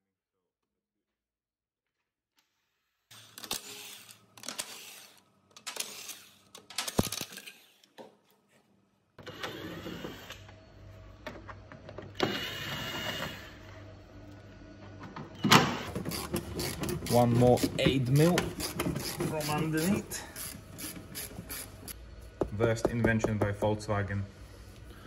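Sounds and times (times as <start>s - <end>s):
cordless driver running: 15.8s - 22.0s
impact wrench rattling: 15.9s - 22.0s.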